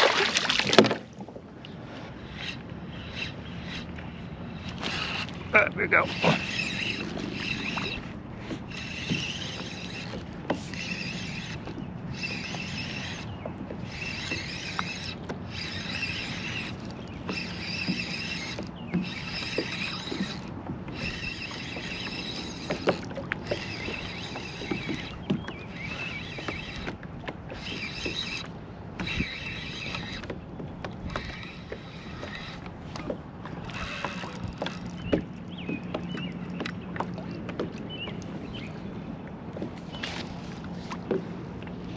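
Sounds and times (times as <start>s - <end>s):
fishing reel gears whirring: 1.6s - 36.8s.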